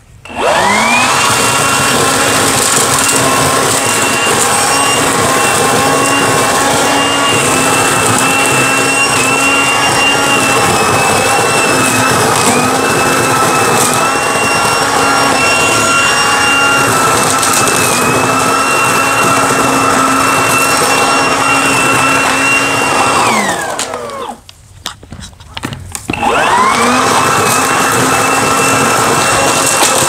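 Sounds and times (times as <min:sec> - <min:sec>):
leaf vacuum whining: 0:00.0 - 0:24.7, 0:25.9 - 0:30.0.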